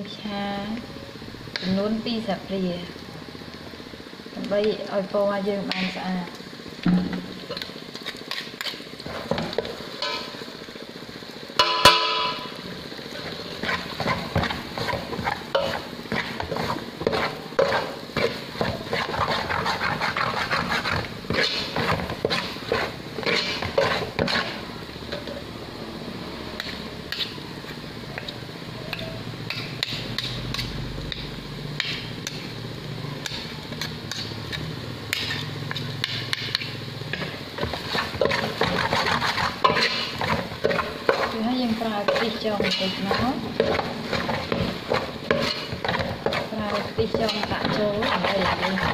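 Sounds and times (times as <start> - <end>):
ringing metal clang: 11.6 - 12.5
metal ladle scraping a pot: 13.2 - 25.3, 33.2 - 41.4, 42.0 - 48.9.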